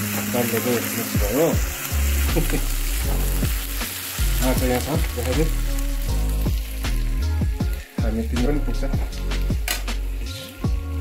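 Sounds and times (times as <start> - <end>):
onions sizzling in a wok: 0.0 - 11.0.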